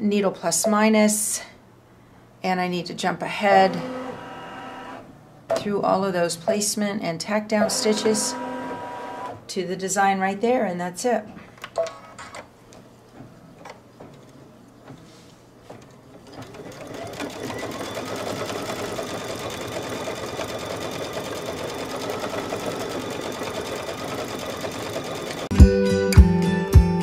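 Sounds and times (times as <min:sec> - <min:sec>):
embroidery machine stitching: 0:03.5 - 0:05.0, 0:07.6 - 0:09.4, 0:16.2 - 0:25.5.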